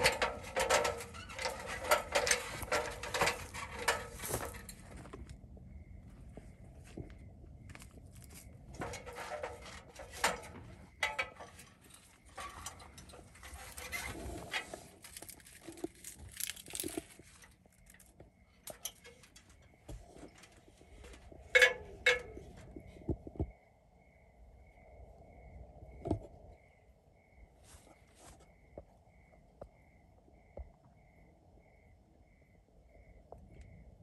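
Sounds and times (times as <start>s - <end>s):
rustling plant handling: 0.0s - 5.2s, 11.8s - 18.1s
insect chirring: 11.8s - 19.9s.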